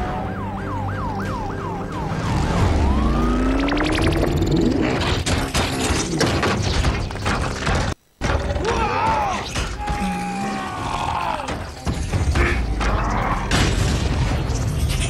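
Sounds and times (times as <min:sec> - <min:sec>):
film music: 0:00.0 - 0:05.0
metallic mechanical sounds: 0:11.6 - 0:15.0.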